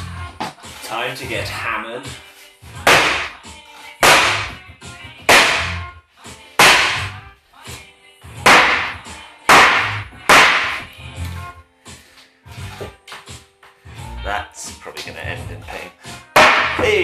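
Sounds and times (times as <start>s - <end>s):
sharp cracks on particleboard: 2.9s - 3.4s, 4.0s - 4.6s, 5.3s - 5.7s, 6.6s - 7.1s, 8.5s - 10.8s, 16.4s - 16.8s
dull thuds: 4.0s - 4.6s, 5.2s - 5.8s, 16.4s - 17.0s.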